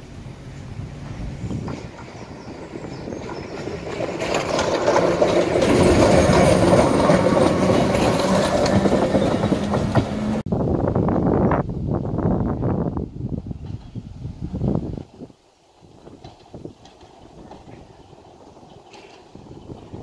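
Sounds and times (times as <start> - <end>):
electric train hum: 0.0 - 20.0
train wheels clicking over rail joints: 1.0 - 10.4, 15.8 - 20.0.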